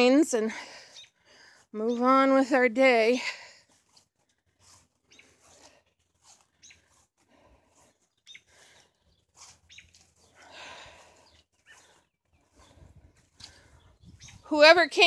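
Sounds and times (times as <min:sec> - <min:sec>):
faint bird chirps: 0:06.5 - 0:07.0, 0:08.0 - 0:10.4.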